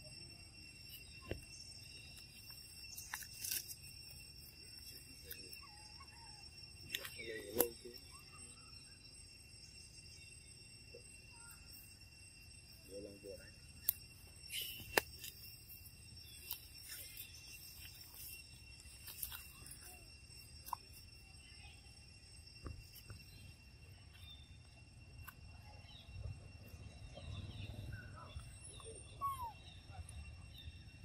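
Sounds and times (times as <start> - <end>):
high insect drone: 0.0 - 31.0
twigs snapping: 2.4 - 3.8, 14.6 - 15.4.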